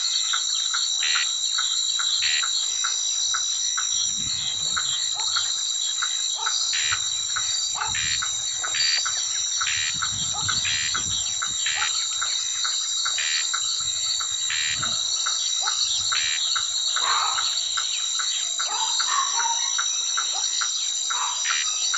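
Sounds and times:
frogs croaking: 0.0s - 21.9s.

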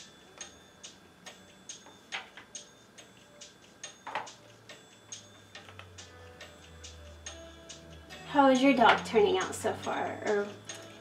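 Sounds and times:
soft regular ticking: 0.0s - 11.0s.

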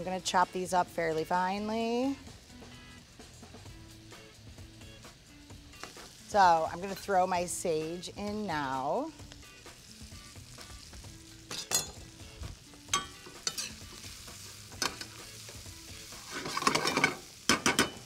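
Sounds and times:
sausage and onion sizzling in pan: 0.0s - 18.0s
utensil scraping and clacking on pan: 13.0s - 14.0s, 14.8s - 18.0s.

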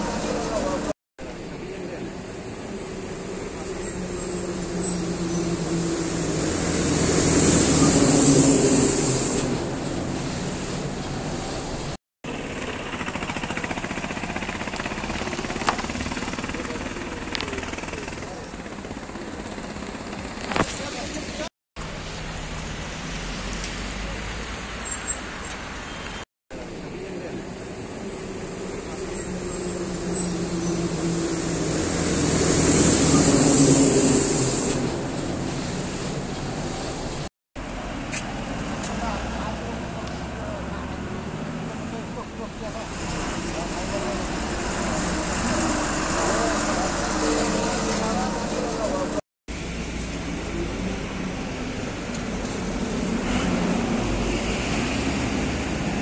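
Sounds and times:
bus passing by: 0.0s - 56.0s
road traffic rumble: 0.0s - 56.0s
rising hiss: 2.1s - 11.6s, 27.0s - 37.1s.

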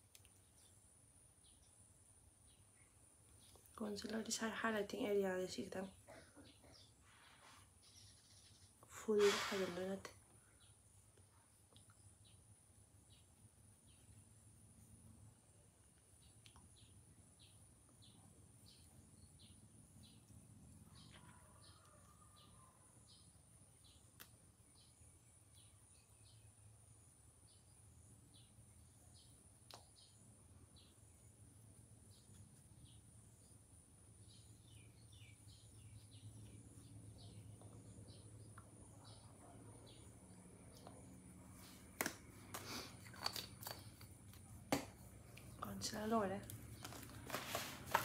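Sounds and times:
faint high bird chirps: 16.2s - 31.4s.

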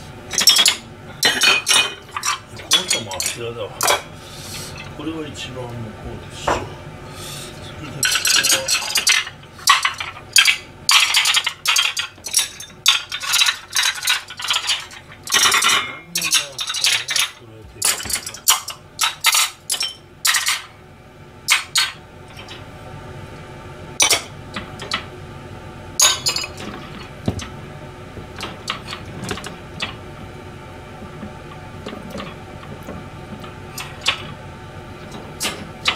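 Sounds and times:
steady low hum: 0.0s - 35.9s
dishes clinking in dishwasher rack: 0.3s - 4.0s, 8.0s - 20.7s, 26.0s - 27.5s, 33.8s - 34.3s.

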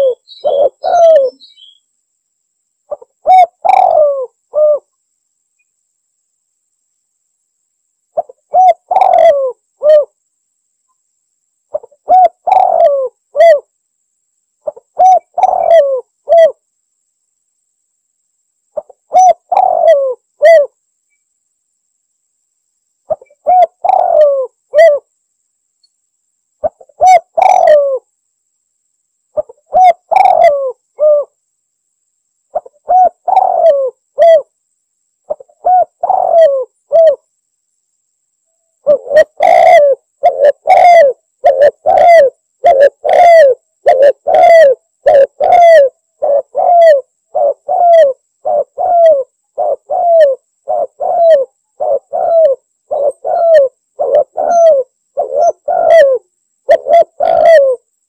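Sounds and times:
dove cooing: 0.0s - 1.8s, 2.9s - 4.9s, 8.2s - 10.2s, 11.7s - 13.7s, 14.6s - 16.6s, 18.8s - 20.8s, 23.1s - 25.1s, 26.6s - 28.1s, 29.4s - 31.4s, 32.5s - 34.5s, 35.3s - 37.3s, 38.8s - 57.9s.

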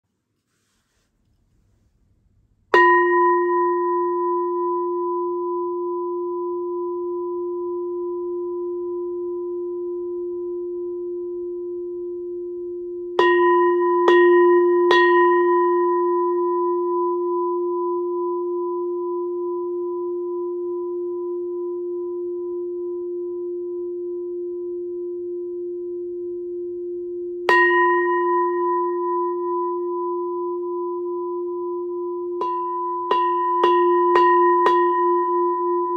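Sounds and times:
brass bell struck and ringing: 32.4s - 35.9s.

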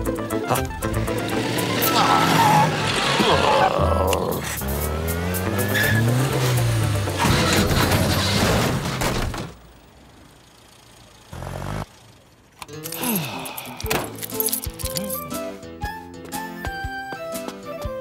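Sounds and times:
cars scraping and crunching: 0.6s - 15.3s
car engine revving: 0.7s - 9.1s, 9.8s - 12.2s.

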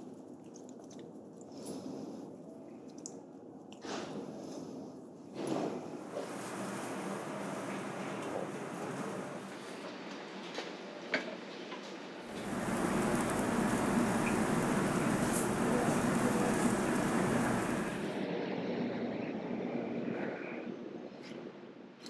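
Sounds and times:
chickens sizzling: 6.1s - 9.8s, 12.3s - 18.2s
gas burners hissing: 6.1s - 9.8s, 12.3s - 18.2s.

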